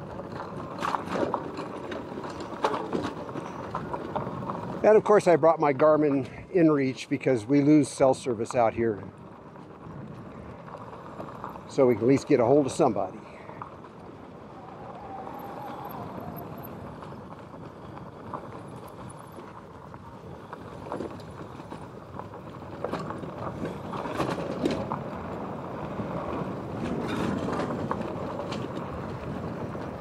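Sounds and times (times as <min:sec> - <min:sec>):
tyre and wind noise: 0:00.0 - 0:30.0.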